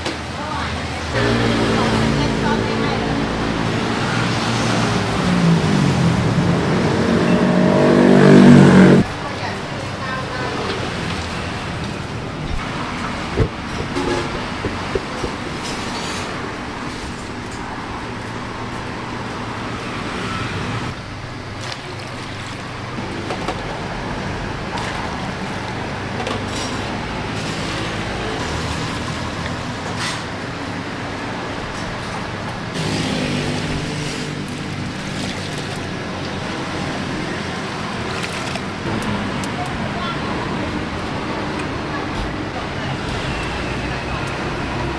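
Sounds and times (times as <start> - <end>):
street traffic hum: 0.0 - 44.9
sharp knocks: 13.4 - 15.9.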